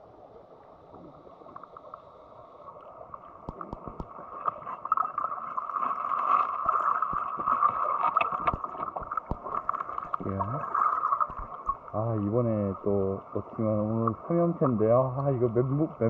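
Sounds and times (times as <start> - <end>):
underwater stream gurgling: 0.0 - 16.0
knocks and clicks against rock: 3.5 - 4.1, 7.1 - 10.2.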